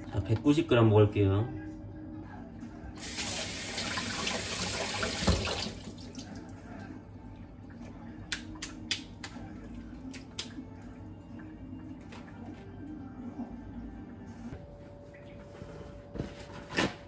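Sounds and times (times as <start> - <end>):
faucet running water: 3.0 - 6.3.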